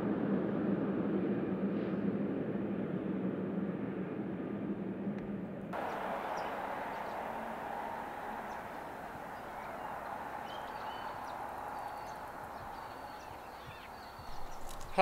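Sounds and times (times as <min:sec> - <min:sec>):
distant truck engine hum: 0:00.0 - 0:15.0
bird chirps: 0:05.8 - 0:15.0
outdoor hiss: 0:05.8 - 0:15.0.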